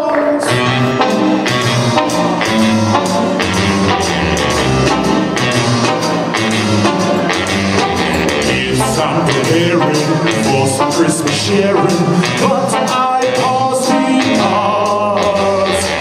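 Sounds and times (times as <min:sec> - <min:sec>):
instrumental music with bass line: 0:00.5 - 0:16.0.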